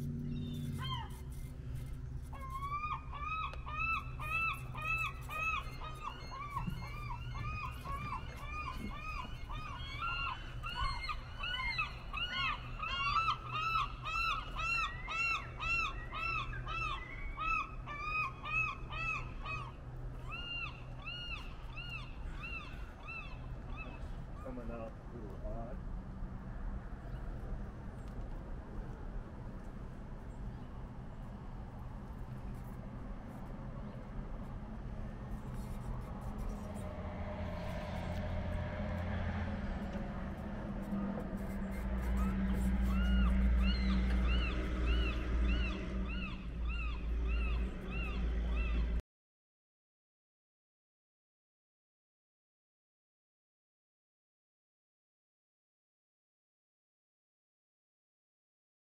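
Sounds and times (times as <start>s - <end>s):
low hum: 0.0s - 24.4s, 25.0s - 49.0s.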